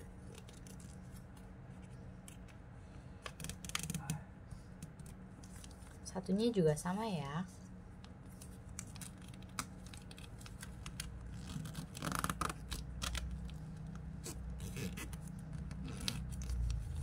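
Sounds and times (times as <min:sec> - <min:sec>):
paper crinkling and rustling: 0:00.2 - 0:02.6, 0:08.1 - 0:17.0.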